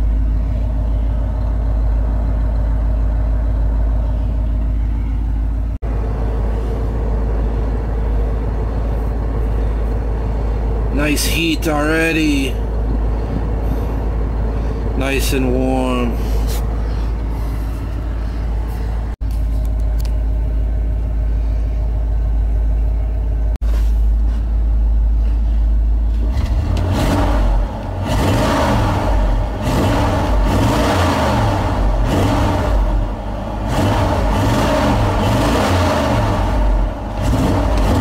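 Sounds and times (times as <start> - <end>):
engine idling with low rumble: 0.0 - 38.0
engine revving: 26.1 - 38.0.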